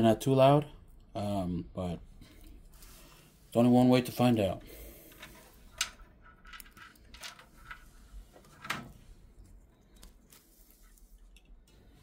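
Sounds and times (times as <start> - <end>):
clicks and rustles of cables: 5.1 - 12.0.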